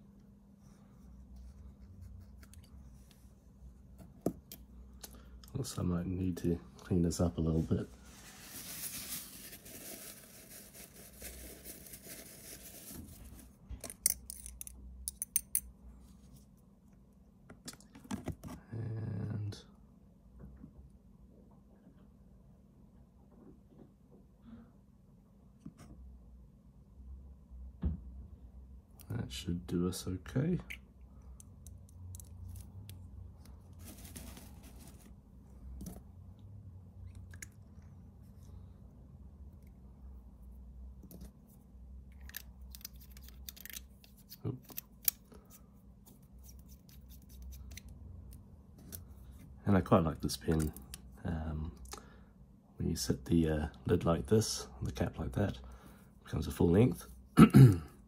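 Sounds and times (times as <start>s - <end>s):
low steady hum: 0.0s - 58.0s
tissue paper rustling: 7.6s - 13.5s, 33.7s - 35.2s.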